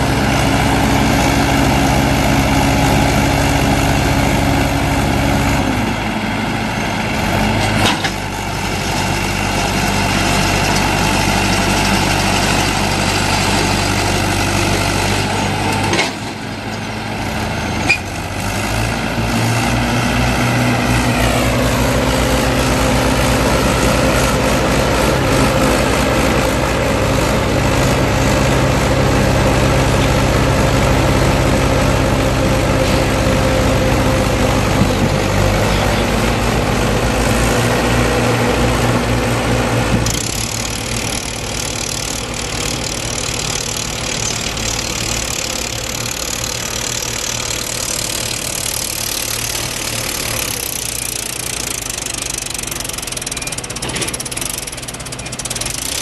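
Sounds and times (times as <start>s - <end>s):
tractor diesel engines under load: 0.0s - 56.0s.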